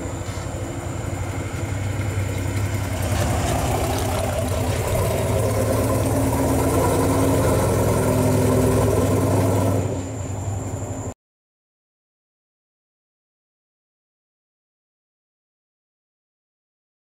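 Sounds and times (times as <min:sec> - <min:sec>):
truck engine running: 0:00.0 - 0:11.1.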